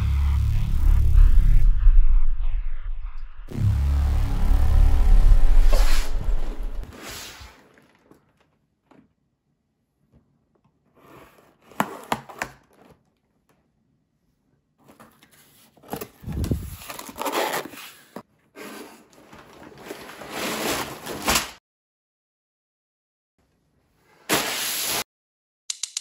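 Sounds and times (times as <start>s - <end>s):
plastic bags crinkling: 7.5s - 8.6s
cardboard flap pulled open: 19.6s - 21.6s.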